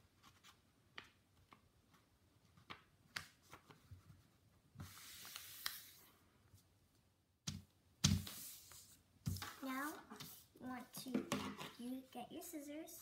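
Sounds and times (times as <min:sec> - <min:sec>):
paper sliding and rubbing: 0:04.8 - 0:06.2, 0:08.2 - 0:10.6.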